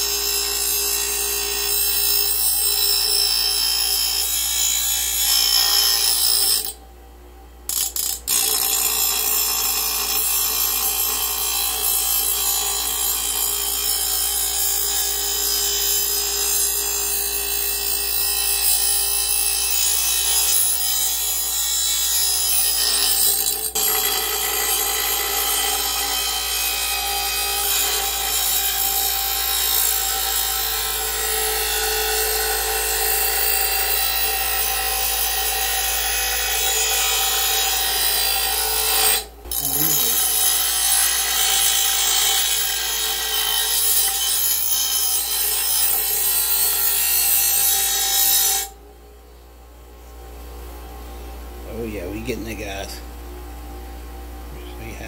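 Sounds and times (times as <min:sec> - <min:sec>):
grinder grinding steel blade: 0:00.0 - 0:06.8, 0:07.7 - 0:48.8
grinder motor running: 0:32.4 - 0:47.7.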